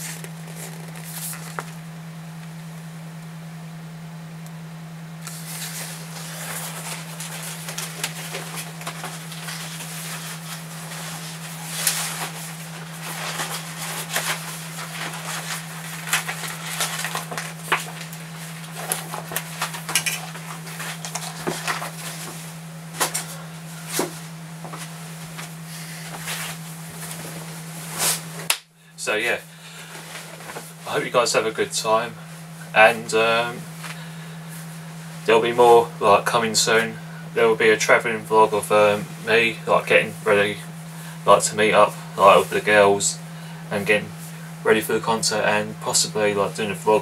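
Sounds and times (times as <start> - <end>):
low electrical hum: 0.0 - 47.0
rustling: 5.3 - 28.5.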